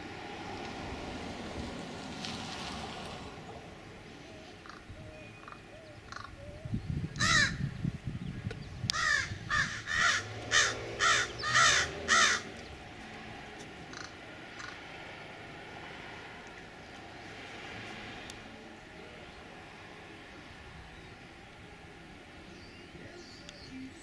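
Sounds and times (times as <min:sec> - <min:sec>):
crow cawing: 0:07.2 - 0:07.6, 0:08.9 - 0:12.5, 0:13.9 - 0:14.8.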